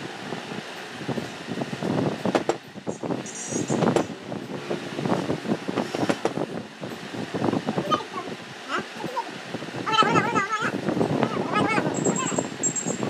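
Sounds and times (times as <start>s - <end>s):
wind buffeting microphone: 0.0s - 13.0s
knocks and clicks of metal: 2.3s - 2.6s.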